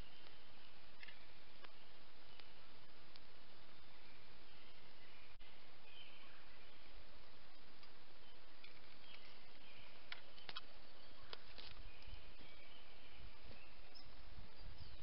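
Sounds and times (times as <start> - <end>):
steady outdoor hiss: 0.0 - 15.0
twigs cracking underfoot: 8.6 - 12.2.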